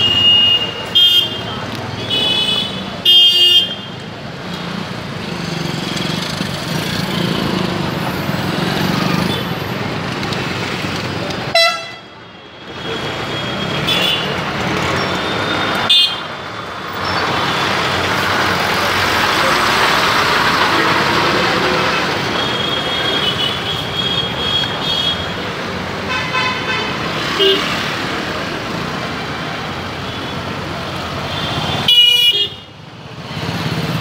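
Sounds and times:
road traffic passing: 0.0 - 34.0
vehicle horn toots: 11.5 - 12.1.

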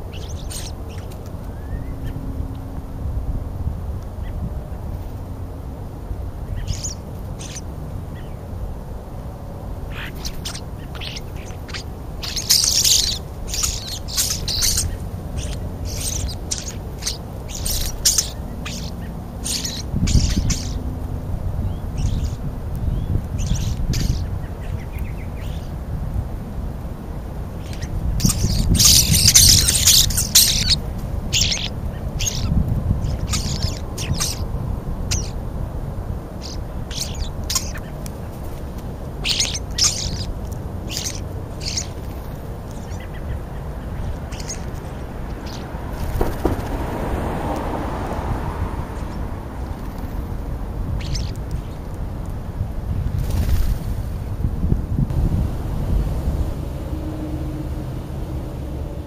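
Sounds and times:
starlings chattering and squawking: 0.0 - 2.7, 4.1 - 52.6
steady low rumble: 0.0 - 59.0.

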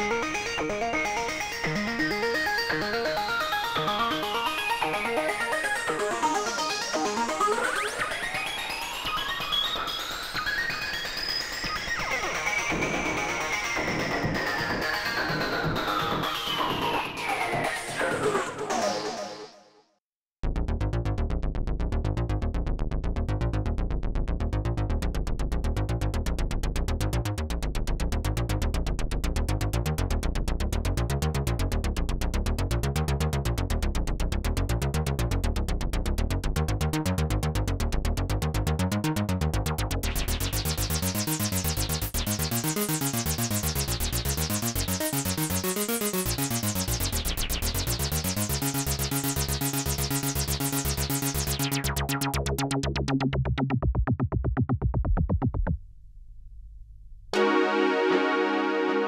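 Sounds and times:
synthesizer pulsing pattern: 0.0 - 17.7, 38.4 - 55.8, 57.4 - 59.0.

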